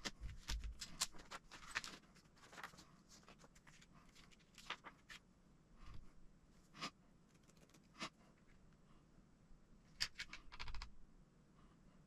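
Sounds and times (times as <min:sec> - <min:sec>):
paper pages rustling: 0:00.0 - 0:05.2.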